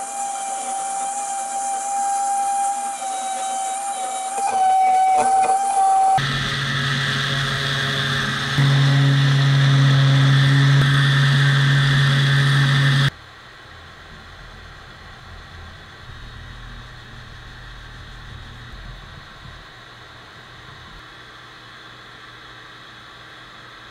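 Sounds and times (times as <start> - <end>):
orbit sander humming: 0.0 - 13.2.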